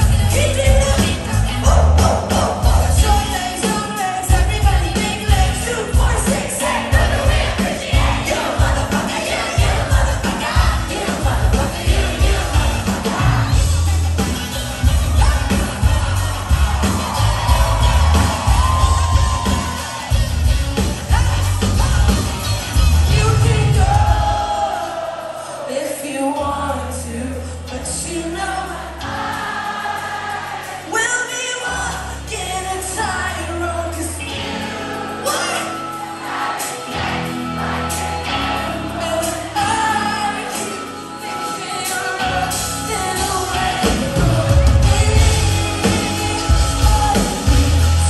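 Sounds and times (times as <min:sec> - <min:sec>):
person singing: 0:00.0 - 0:20.1, 0:37.0 - 0:48.0
live band playing pop-rock: 0:00.0 - 0:48.0
audience shouting: 0:06.3 - 0:22.9.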